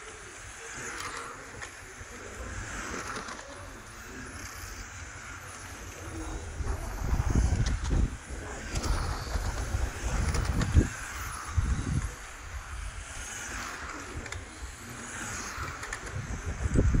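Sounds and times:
electric rc cars whirring: 0.0s - 17.0s
wind rumbling on microphone: 6.0s - 17.0s.

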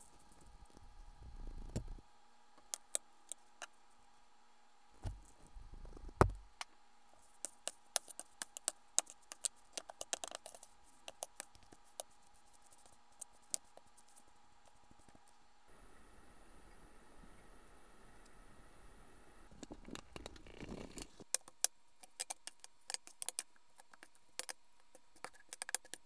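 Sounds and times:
dull thump: 5.0s - 5.3s.

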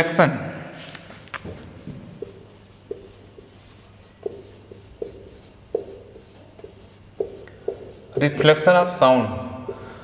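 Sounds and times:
marker pen writing on whiteboard: 2.2s - 8.8s, 9.5s - 10.0s.

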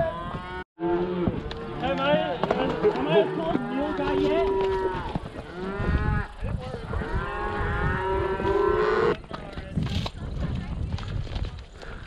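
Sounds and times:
cattle mooing: 7.0s - 9.2s.

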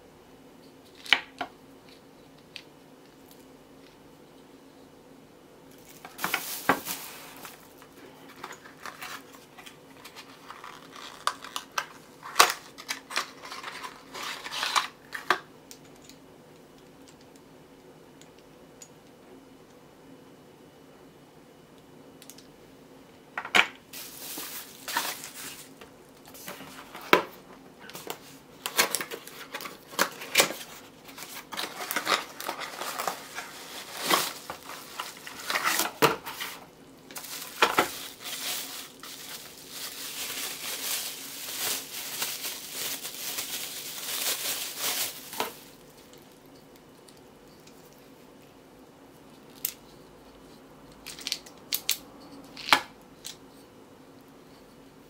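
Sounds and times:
bubble wrap crinkling: 5.7s - 15.4s, 23.9s - 27.1s, 28.0s - 46.5s.

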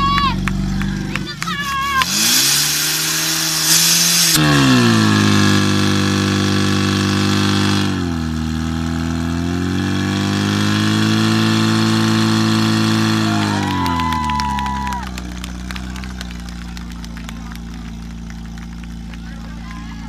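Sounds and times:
pump engine running hard: 0.0s - 20.0s
loud hiss: 2.2s - 4.4s.

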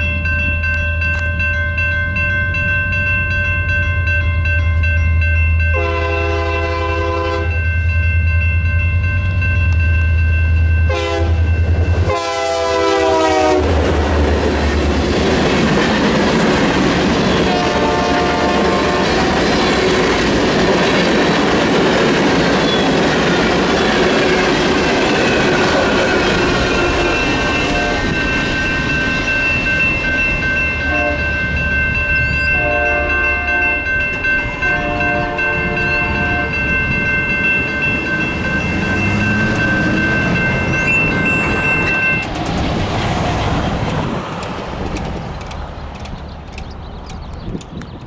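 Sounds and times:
crossing bell ringing: 0.0s - 13.7s, 14.3s - 42.6s
distant locomotive horn: 5.7s - 7.6s, 10.9s - 13.9s, 17.3s - 19.5s, 25.6s - 28.3s, 30.8s - 31.4s, 32.4s - 34.0s, 34.6s - 36.8s, 38.5s - 42.3s
freight train wheels clattering: 11.4s - 48.0s.

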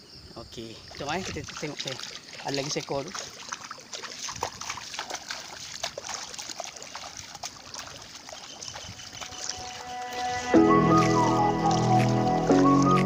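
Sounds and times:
water splashing around wading legs: 0.9s - 13.0s.

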